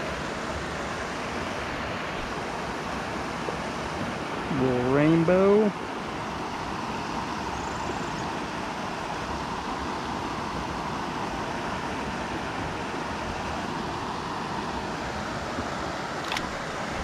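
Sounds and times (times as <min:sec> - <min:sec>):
river flowing over stones: 0:00.0 - 0:17.0
sharp click: 0:16.2 - 0:16.6.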